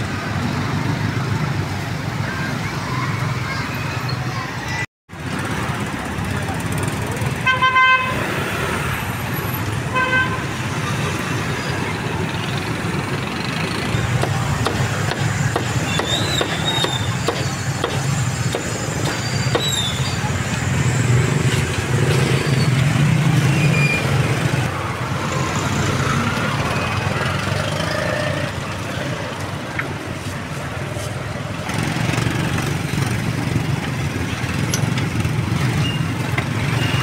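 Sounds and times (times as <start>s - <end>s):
motorbike and car traffic: 0.0s - 37.0s
cleaver chopping on wooden block: 14.2s - 19.8s.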